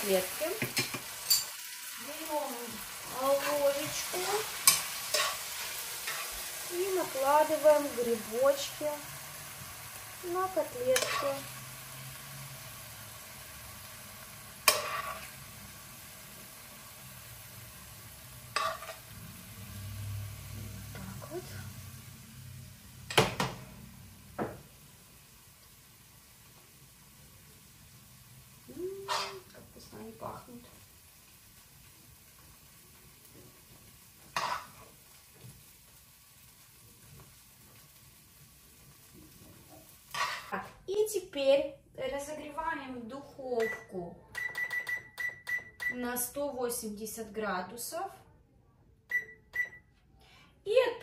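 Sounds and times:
faint steady hiss: 0.0 - 43.4
spoon scraping frying pan: 0.6 - 1.6, 3.3 - 6.6, 10.7 - 11.5, 14.6 - 15.4, 18.4 - 19.1, 29.0 - 29.5, 34.2 - 35.0, 40.1 - 40.6.

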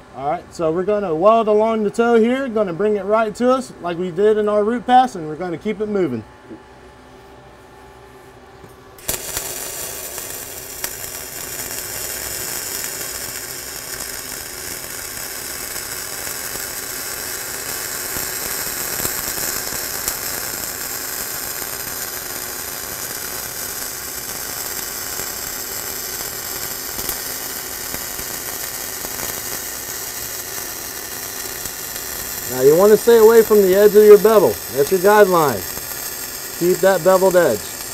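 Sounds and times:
welding arc crackling sizzle: 8.6 - 37.9.

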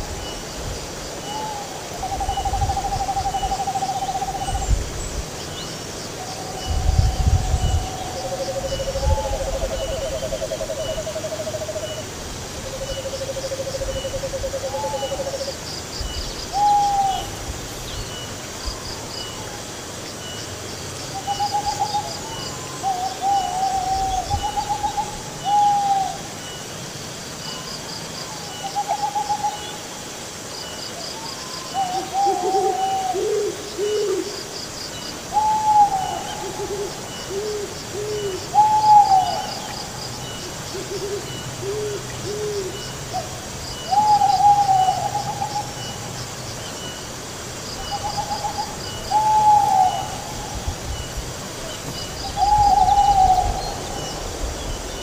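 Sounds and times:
faint insect chirping: 0.0 - 55.0
lower owl call: 1.2 - 5.0, 6.2 - 19.6, 21.1 - 26.6, 27.4 - 30.0, 31.0 - 47.1, 47.7 - 55.0
owls hooting: 21.2 - 26.3, 31.6 - 34.3, 35.4 - 40.0, 40.7 - 46.0, 47.8 - 50.7, 52.2 - 54.2.

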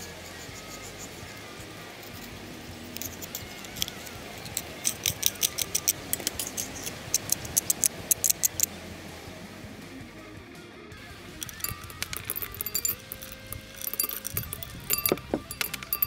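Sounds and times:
knife blade scraping metal: 3.0 - 8.6.

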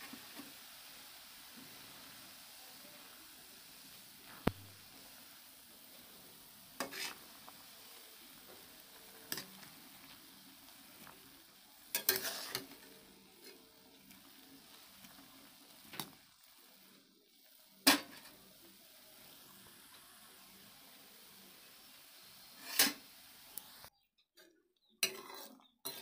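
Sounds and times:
food sizzling in hot oil: 0.0 - 23.9
metal spatula scraping a pan: 5.9 - 16.2, 17.8 - 18.4, 22.4 - 23.1, 25.0 - 26.0.

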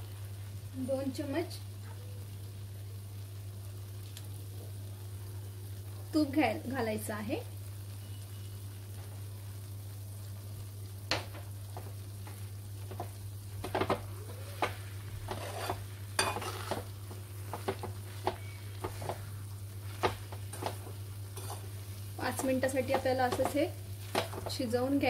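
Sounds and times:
spatula scraping metal pan: 15.2 - 16.9, 21.4 - 21.8.

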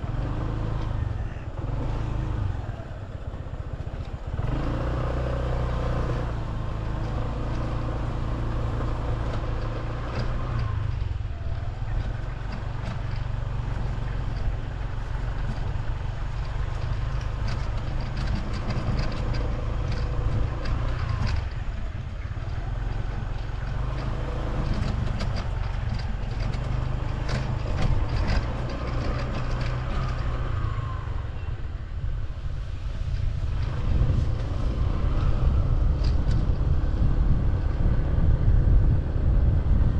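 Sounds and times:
scooter engine running: 0.0 - 32.0.

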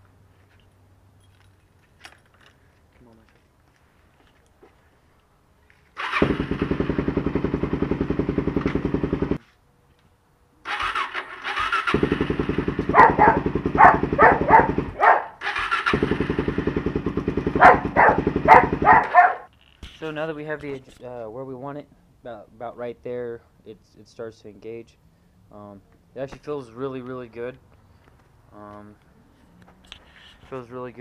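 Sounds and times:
electric starter cranking engine: 6.0 - 9.4, 10.7 - 19.3
engine sharp pops: 6.2 - 9.4, 11.9 - 15.0.

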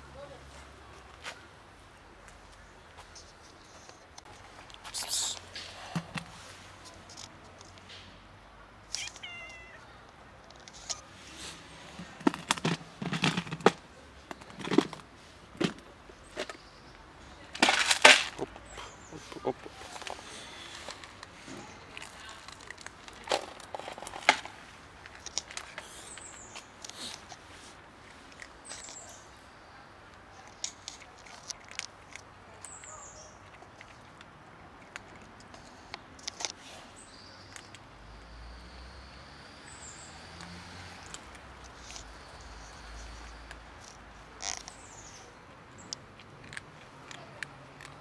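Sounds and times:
cats crunching dry kibble: 8.9 - 16.6, 17.4 - 29.4, 30.0 - 36.8, 37.4 - 37.9, 40.4 - 48.0
plastic container clicks and knocks: 12.2 - 15.0.

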